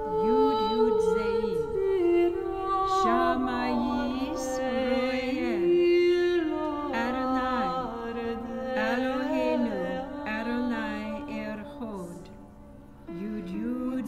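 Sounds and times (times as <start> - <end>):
voices singing slow chant: 0.0 - 14.0.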